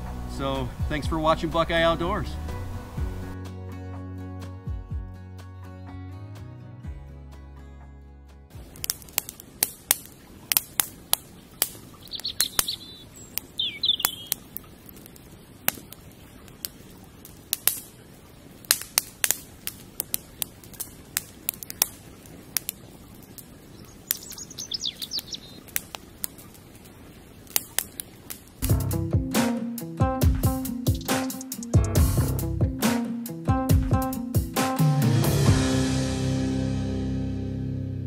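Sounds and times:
campfire crackling and popping: 8.5 - 34.8
songbird chirping: 11.4 - 14.9, 23.6 - 26.0, 30.6 - 31.7.

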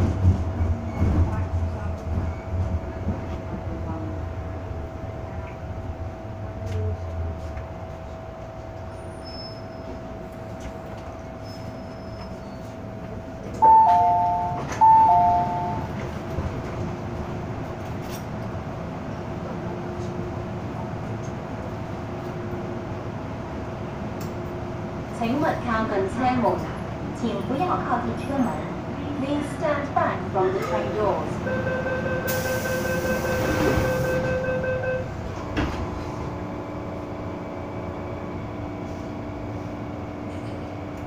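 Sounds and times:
metro car rumbling: 0.0 - 41.0
train braking whine: 31.4 - 36.7.

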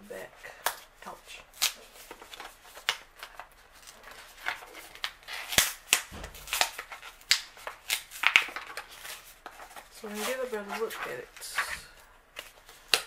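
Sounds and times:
plastic packaging cracking: 1.6 - 9.2.

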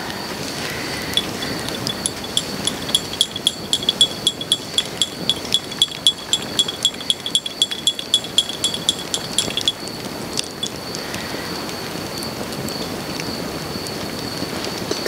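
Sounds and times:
teaspoon clinking in cup: 1.2 - 9.8.

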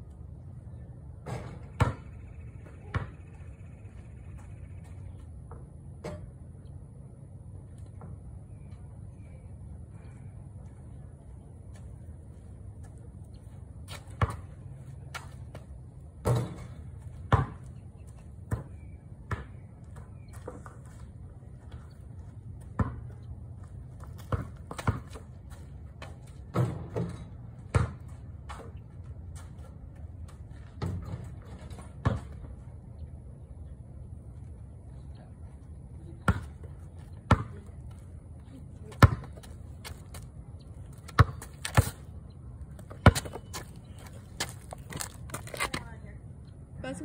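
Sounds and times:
basketball bouncing on pavement: 1.2 - 3.4, 13.9 - 32.6, 36.1 - 46.0.

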